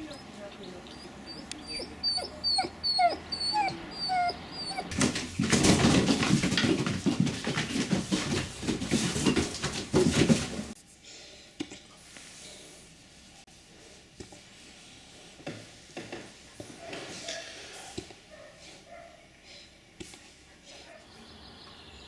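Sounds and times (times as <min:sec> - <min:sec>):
puppy whimpering yips: 0:00.0 - 0:05.0
puppies scuffling and rustling: 0:03.0 - 0:10.8.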